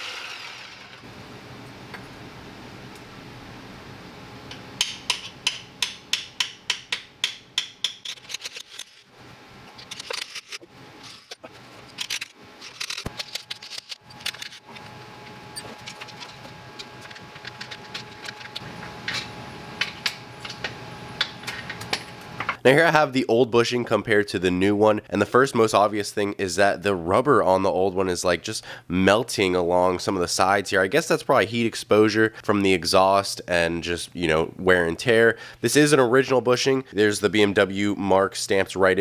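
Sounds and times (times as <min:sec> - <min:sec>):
hammer striking chisel: 0:04.8 - 0:08.0.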